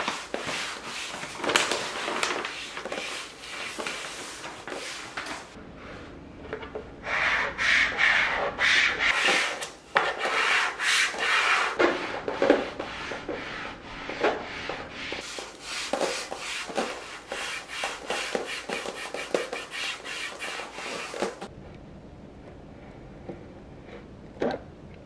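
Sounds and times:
gloved hands brushing a panel: 0.0 - 5.6, 7.0 - 21.5.

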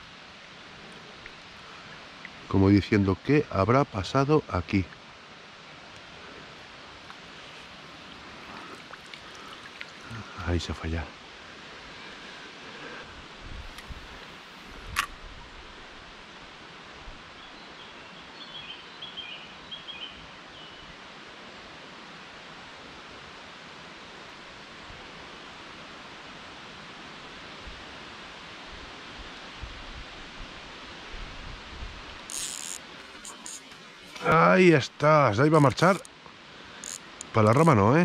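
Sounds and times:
river water running: 0.0 - 38.0
small bird chirping: 32.3 - 34.2.

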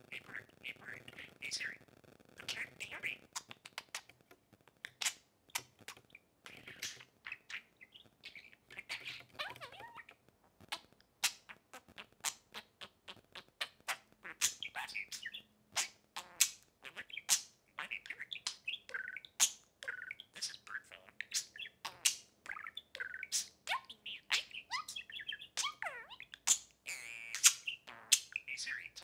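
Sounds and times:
budgerigars chirping: 0.1 - 1.8, 2.4 - 4.1, 4.9 - 29.0
sharp bird clicks: 2.4 - 9.8, 27.3 - 29.0.

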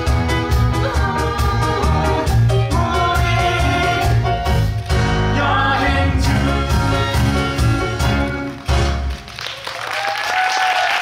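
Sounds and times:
person singing: 0.0 - 7.6
live band backing: 0.0 - 9.6.

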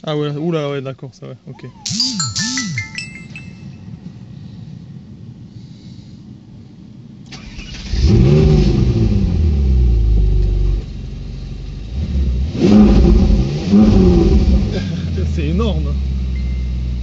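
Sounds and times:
car engine idling and revving: 7.4 - 17.0.

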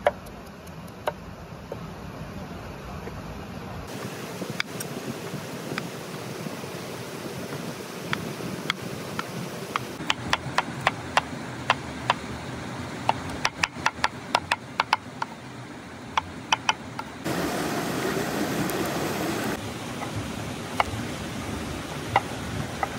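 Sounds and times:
wood fire burning: 3.9 - 16.5, 17.2 - 22.9.

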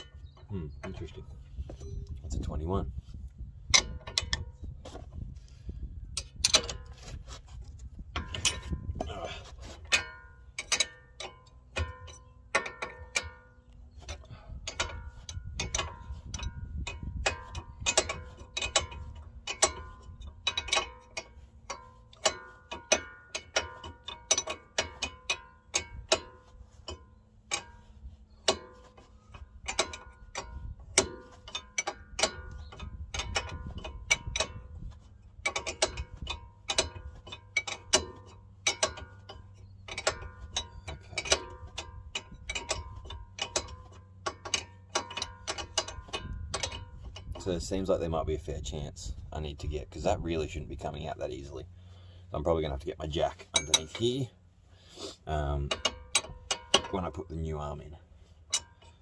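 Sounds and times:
spanner metallic clicks: 9.8 - 48.0, 55.6 - 59.0.

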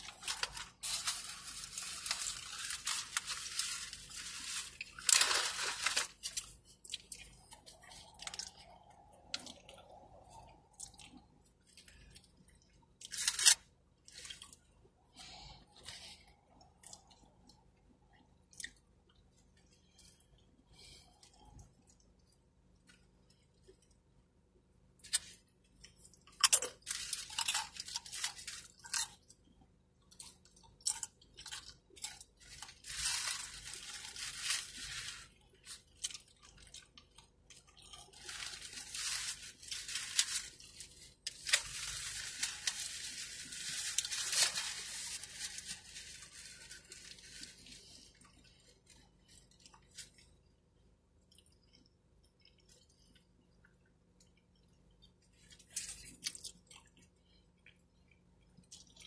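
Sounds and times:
crunching chips: 0.0 - 17.6, 25.0 - 50.5, 54.3 - 59.0
chewing: 6.1 - 12.8, 35.3 - 39.2, 51.3 - 59.0.

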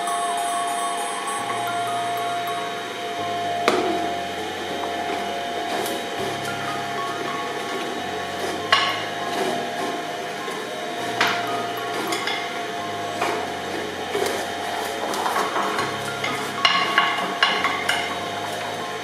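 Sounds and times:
shredder humming: 0.0 - 19.0.

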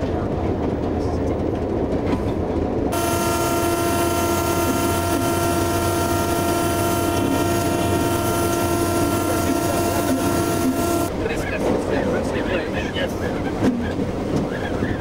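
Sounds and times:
moving train rumble: 0.0 - 15.0
steam locomotive whistle: 2.9 - 11.1.

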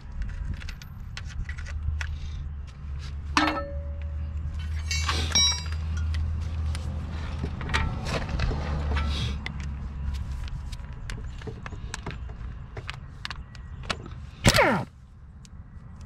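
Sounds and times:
loud ringing metal clanks: 3.4 - 6.1
metal tools clinking: 3.4 - 6.3.

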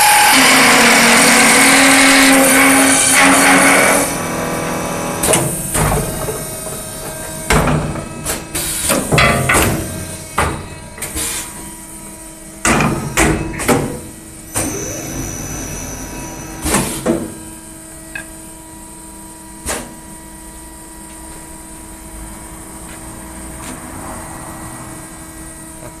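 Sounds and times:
wood lathe humming: 0.0 - 8.2
loud knocks and clatters: 5.2 - 10.7.

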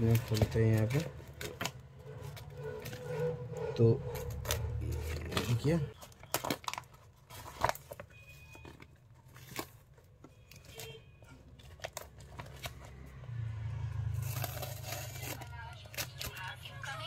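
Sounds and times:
tape and packing rustling: 0.0 - 13.0, 14.1 - 16.7
wrapping tearing: 4.1 - 8.0, 14.1 - 16.8.

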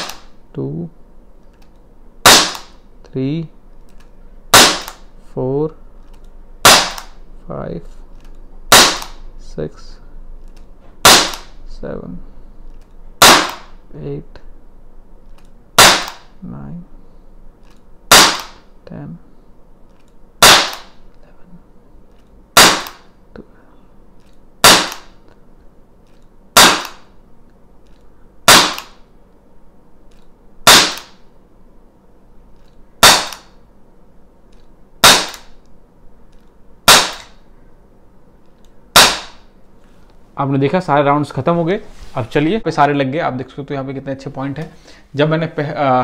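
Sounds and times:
air pistol shots: 0.0 - 0.4, 2.2 - 2.8, 4.5 - 5.1, 6.6 - 7.2, 8.7 - 9.2, 11.0 - 11.6, 13.2 - 13.8, 15.8 - 16.4, 18.1 - 18.7, 20.4 - 21.0, 22.5 - 23.1, 24.6 - 25.2, 26.5 - 27.1, 28.4 - 29.1, 30.6 - 31.3, 33.0 - 33.6, 35.0 - 35.6, 36.8 - 37.4, 38.9 - 39.5.

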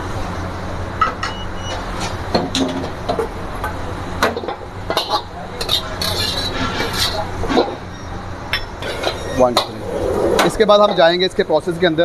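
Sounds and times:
hum of burners and extraction: 0.0 - 12.0
wok and ladle clanking: 2.4 - 9.8.

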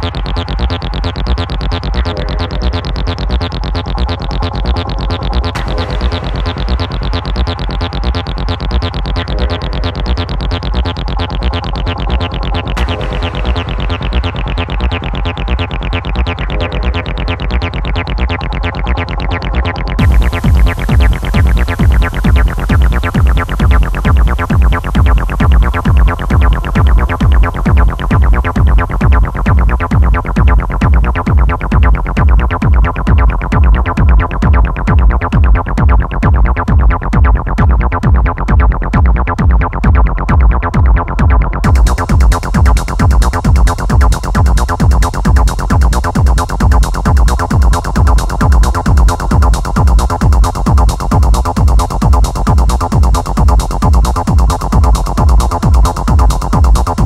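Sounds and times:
synthesizer layers: 0.0 - 57.0
techno music: 0.0 - 57.0
hi-hat: 20.0 - 40.6, 41.2 - 57.0.

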